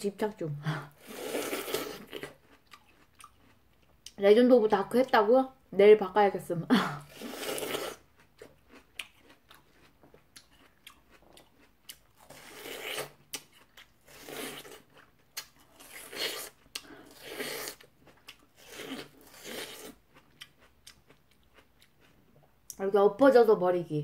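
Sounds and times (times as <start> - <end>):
crunchy chewing of watermelon: 0.9 - 4.2, 7.0 - 22.6.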